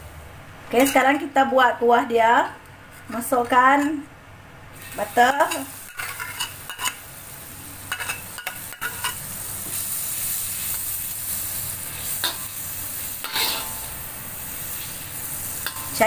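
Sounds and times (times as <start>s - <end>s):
butter sizzling in wok: 4.7s - 16.0s
metal ladle scraping pan: 5.5s - 7.0s, 13.2s - 14.0s.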